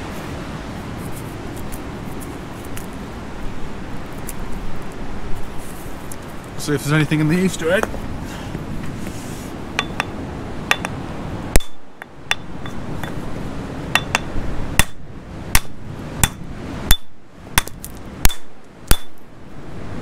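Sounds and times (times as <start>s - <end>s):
hammer striking stone: 9.8s - 11.0s, 11.6s - 13.2s, 14.0s - 15.0s, 15.6s - 19.2s.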